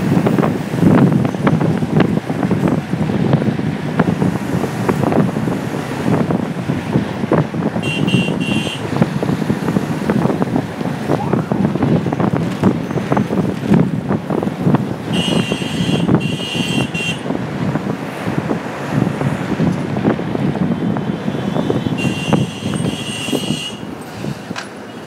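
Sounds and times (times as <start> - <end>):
wind buffeting microphone: 0.0 - 24.8
bus running along road: 0.0 - 25.0
horn toots: 7.8 - 8.9, 15.1 - 17.3, 21.5 - 23.9.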